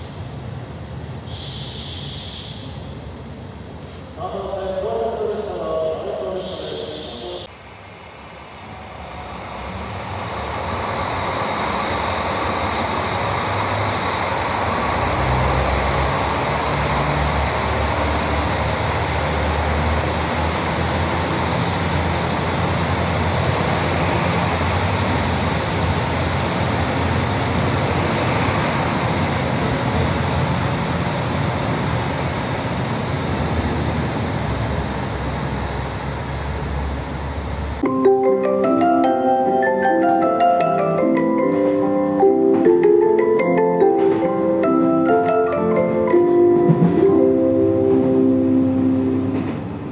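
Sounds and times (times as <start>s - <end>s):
diesel engines under load: 0.0s - 49.9s
wheel and rail noise: 39.8s - 49.9s.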